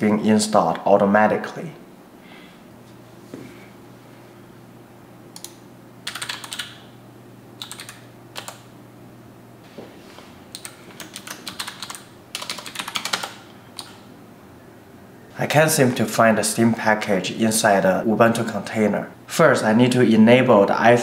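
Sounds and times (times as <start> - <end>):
computer keyboard typing: 5.4 - 6.8, 7.6 - 8.7, 10.5 - 14.0.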